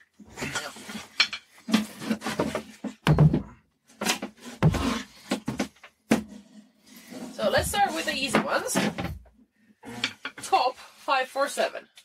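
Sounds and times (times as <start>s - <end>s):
wooden boards knocking: 1.7s - 6.3s.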